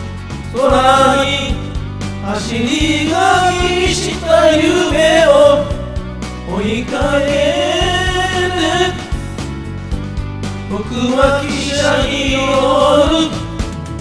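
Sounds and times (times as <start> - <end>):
karaoke backing track: 0.0 - 14.0
people singing into microphones: 0.5 - 9.3, 10.6 - 13.7.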